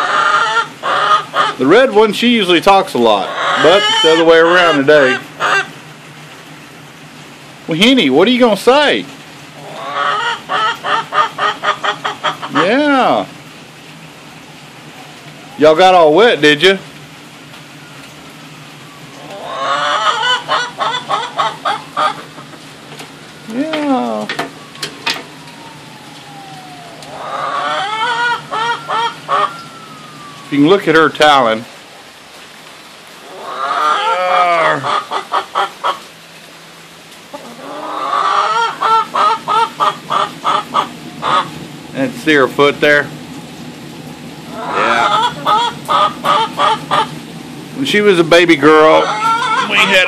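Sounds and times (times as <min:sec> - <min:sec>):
hen clucking: 0:00.0 - 0:02.0, 0:02.7 - 0:05.8, 0:09.6 - 0:12.9, 0:19.2 - 0:22.7, 0:26.4 - 0:30.4, 0:33.2 - 0:36.1, 0:37.3 - 0:41.6, 0:44.5 - 0:47.2, 0:48.6 - 0:50.0.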